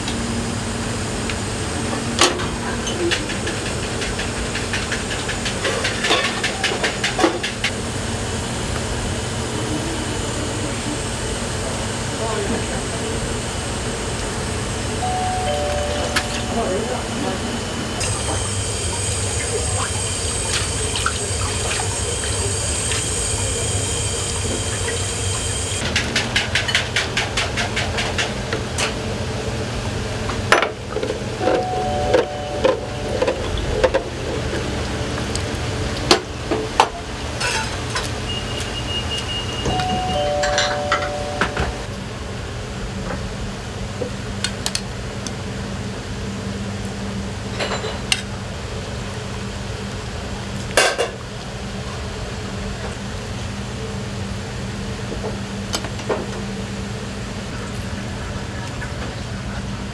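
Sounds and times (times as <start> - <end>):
short two-note beep: 15.0 - 17.3, 31.4 - 33.3, 39.3 - 41.9
tap water rushing: 18.0 - 25.8.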